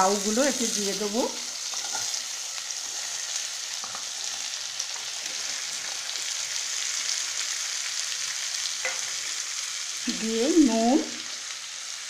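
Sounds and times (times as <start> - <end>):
vegetables sizzling in oil: 0.0 - 12.0.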